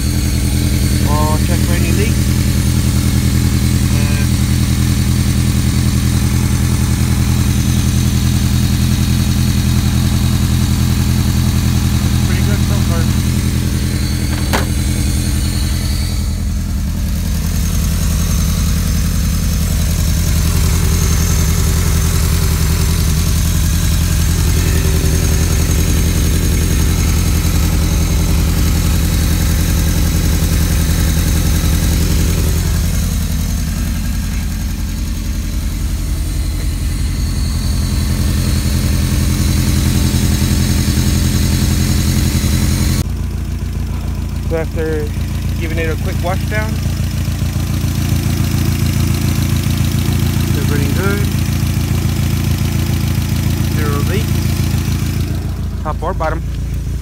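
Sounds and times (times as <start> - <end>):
car engine idling: 0.0 - 57.0.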